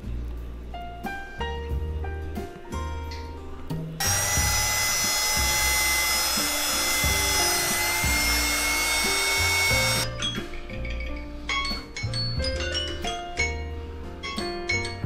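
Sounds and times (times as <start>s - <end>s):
background music: 0.0s - 15.0s
power drill mixer whining: 4.0s - 10.1s.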